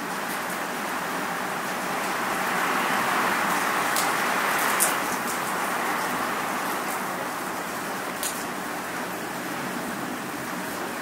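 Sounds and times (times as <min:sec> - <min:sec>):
rain: 0:00.0 - 0:11.0.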